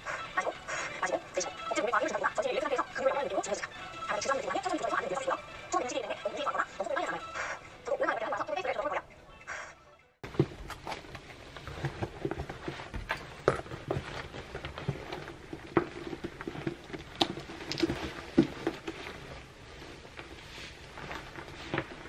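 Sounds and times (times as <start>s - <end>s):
clothing rustling: 10.2s - 22.0s.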